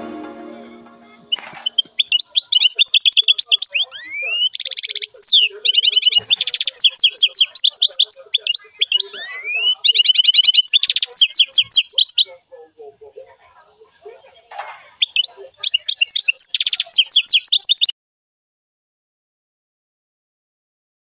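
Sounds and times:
lovebird chirping: 0:00.0 - 0:12.4, 0:15.0 - 0:17.9.

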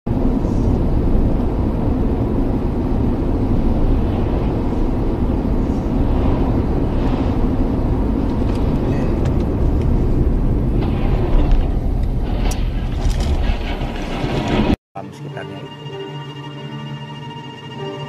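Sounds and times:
car road noise from inside: 0:00.1 - 0:14.0.

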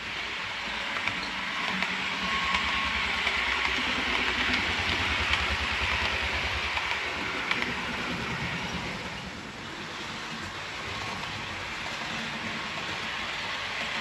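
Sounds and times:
model train wheels on rail: 0:00.0 - 0:14.0
faint clicks: 0:00.9 - 0:08.1.

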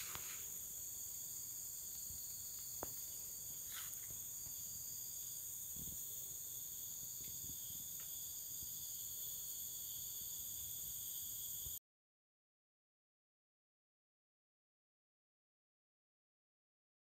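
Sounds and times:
insects trilling: 0:00.0 - 0:11.8.

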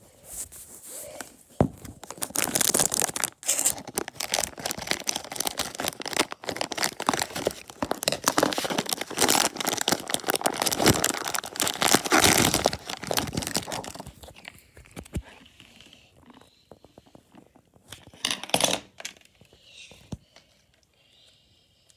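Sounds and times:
wrapper crinkling and tearing: 0:01.8 - 0:15.2.

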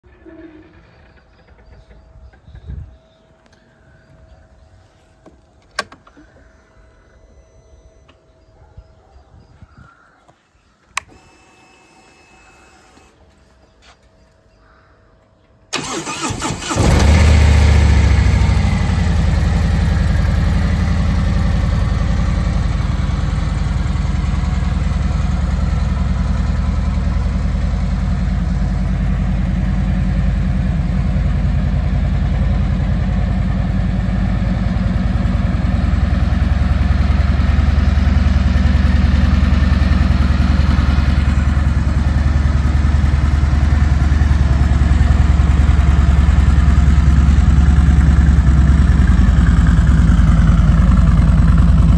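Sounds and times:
motorcycle engine idling: 0:15.7 - 0:51.9.

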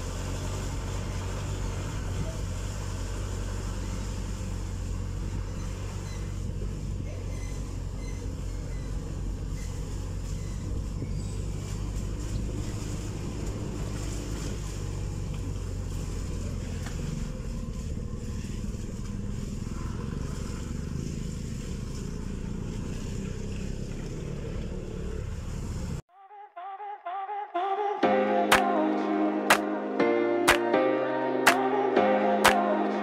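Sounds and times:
vehicle engine rumbling: 0:00.0 - 0:26.1.

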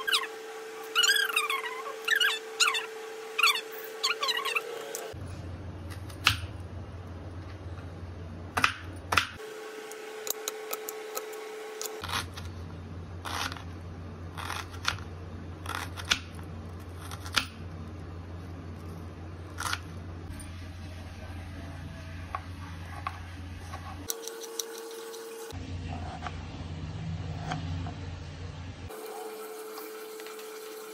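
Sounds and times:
steady low hum: 0:04.9 - 0:28.9.

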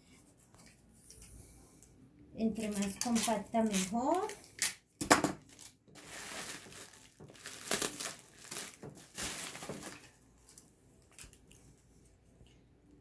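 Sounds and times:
bubble wrap crinkling: 0:02.4 - 0:04.7, 0:05.4 - 0:11.8.

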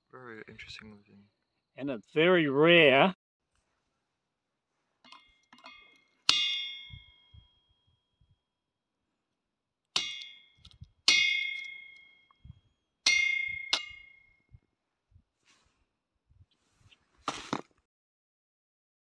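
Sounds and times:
hammer clanging on steel block: 0:05.1 - 0:07.6, 0:10.0 - 0:12.4, 0:13.1 - 0:14.4.

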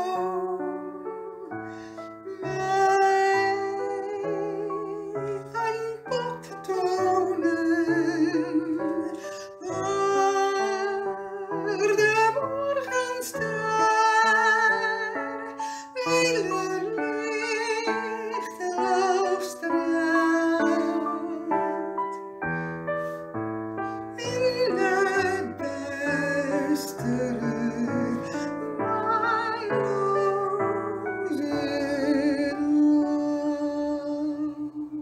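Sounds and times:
keyboard accompaniment: 0:00.0 - 0:35.0
person singing with vibrato: 0:00.0 - 0:35.0.

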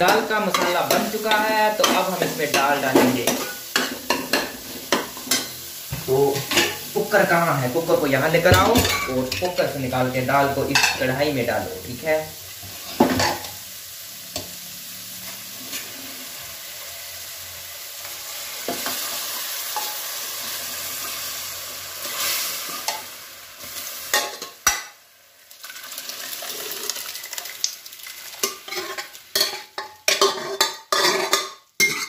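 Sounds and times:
spoon clinking against metal pots: 0:00.0 - 0:05.5, 0:08.5 - 0:09.6, 0:28.4 - 0:32.0
masala sizzling in metal pan: 0:00.0 - 0:32.0.

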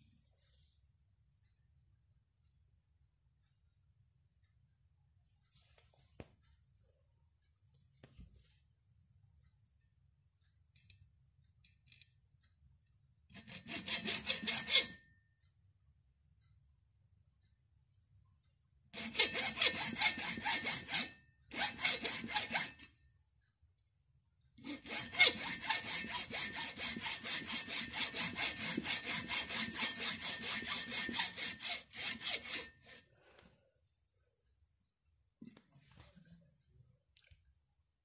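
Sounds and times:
hacksaw cutting plastic: 0:13.3 - 0:15.0, 0:18.9 - 0:22.9, 0:24.6 - 0:33.1.

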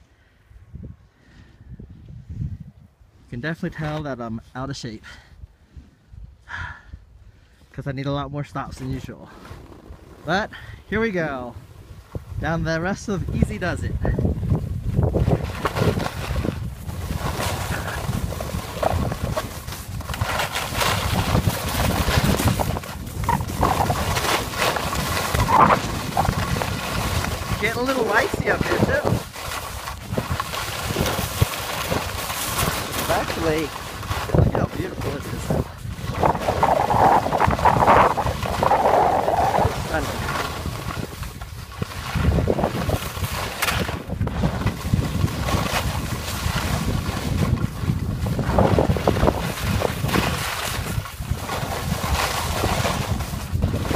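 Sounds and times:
wind buffeting microphone: 0:00.6 - 0:03.3, 0:08.6 - 0:53.9
skis scraping over icy snow: 0:08.8 - 0:10.4, 0:14.2 - 0:53.9.

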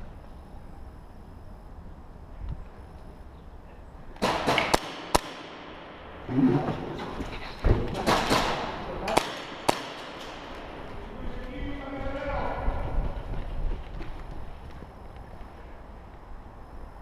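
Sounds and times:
quick footsteps: 0:10.2 - 0:15.6.

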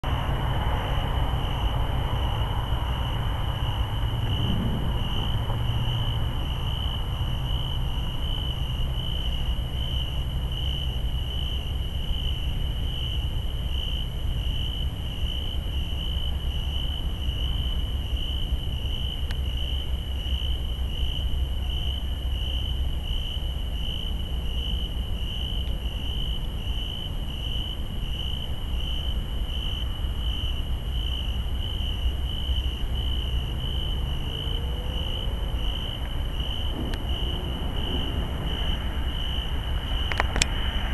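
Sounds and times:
insect chirping: 0:00.1 - 0:40.9
low rumble: 0:02.6 - 0:08.7, 0:33.5 - 0:40.9.

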